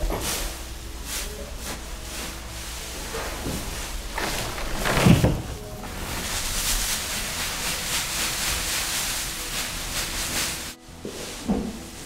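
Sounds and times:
straw rustling: 0:00.0 - 0:12.0
pitchfork thunk: 0:03.1 - 0:06.5.

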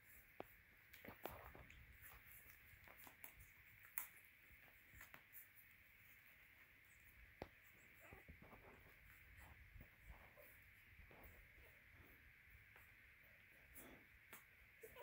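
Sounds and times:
puppies suckling wet clicks: 0:00.0 - 0:08.0.

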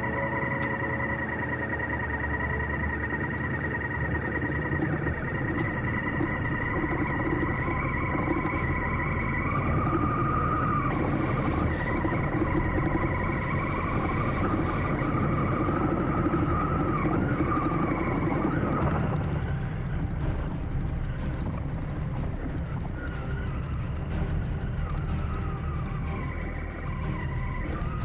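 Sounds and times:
stones clicking under tyres: 0:03.2 - 0:28.0
motorcycle engine running: 0:04.3 - 0:26.4.

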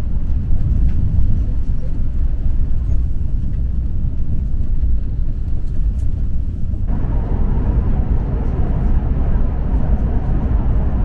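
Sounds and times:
high-speed train rumble inside cabin: 0:00.0 - 0:11.0.

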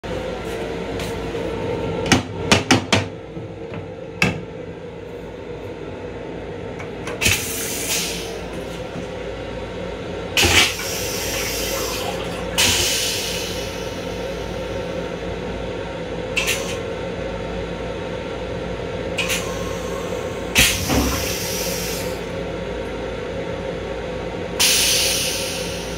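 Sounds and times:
steady hum: 0:00.0 - 0:25.9
toilet flushing: 0:06.9 - 0:09.3, 0:10.3 - 0:15.0, 0:19.2 - 0:22.3.

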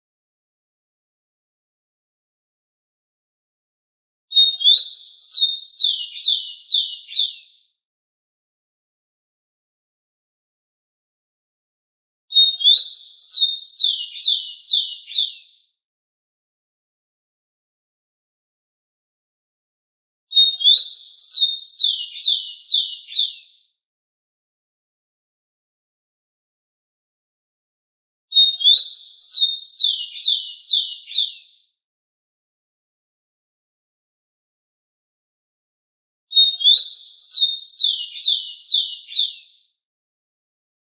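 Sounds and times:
sparrow whistling song: 0:04.3 - 0:07.7, 0:12.3 - 0:15.6, 0:20.3 - 0:23.7, 0:28.3 - 0:31.7, 0:36.3 - 0:39.7.

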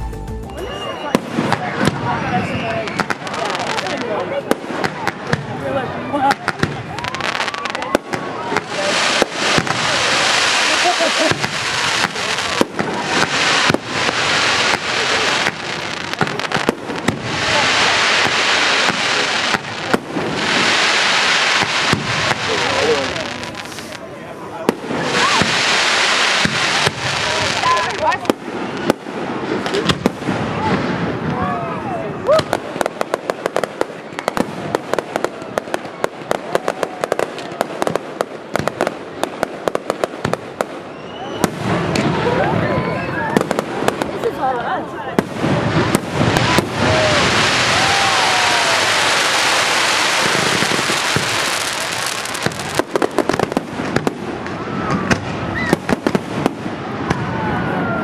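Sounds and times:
hissing crackle of fireworks: 0:00.6 - 0:58.0.

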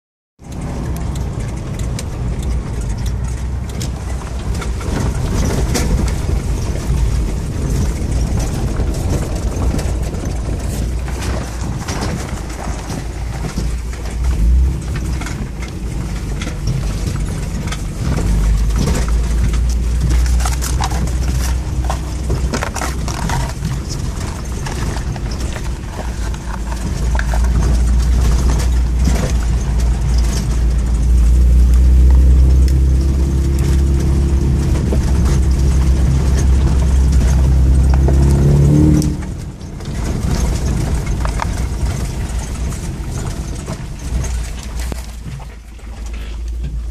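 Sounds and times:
engine running at low speed: 0:00.4 - 0:46.9
vehicle body knocks and rattles: 0:00.5 - 0:46.9.

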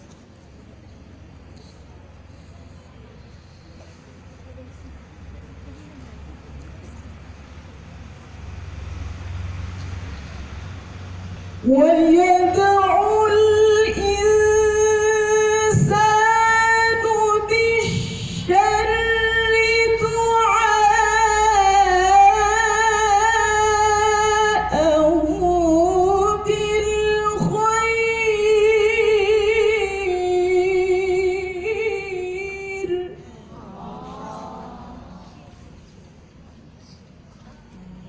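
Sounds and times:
woman reciting melodically over loudspeaker: 0:11.5 - 0:36.0.

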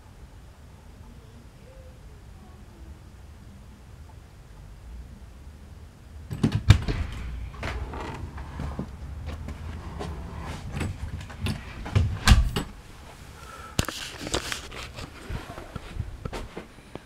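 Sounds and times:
door latch click: 0:06.3 - 0:09.0
knocks: 0:06.3 - 0:12.8
rustling: 0:06.3 - 0:16.8
footsteps: 0:06.4 - 0:16.7
laptop being handled: 0:13.8 - 0:16.5.

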